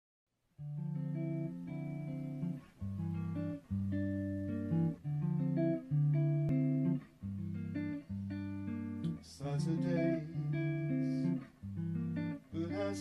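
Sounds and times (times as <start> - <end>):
jazz guitar chords: 0.6 - 13.0.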